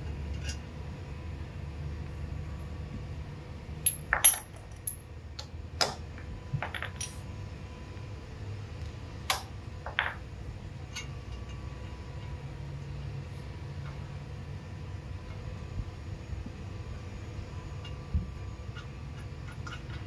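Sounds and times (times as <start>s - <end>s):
low steady hum: 0.0s - 20.0s
metal tools clinking on concrete: 3.8s - 5.1s, 6.6s - 7.2s, 9.3s - 10.2s.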